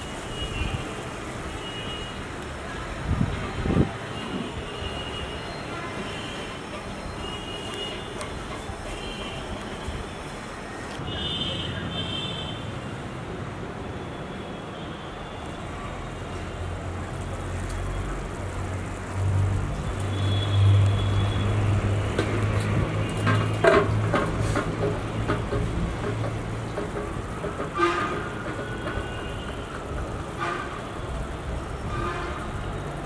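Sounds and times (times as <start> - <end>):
heavy vehicle engine rumble: 20.7 - 33.0.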